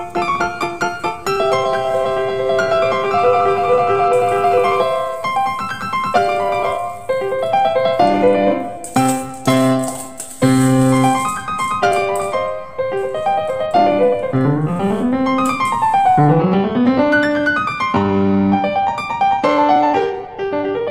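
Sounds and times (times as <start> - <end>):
piano-like keyboard music: 0.0 - 20.9.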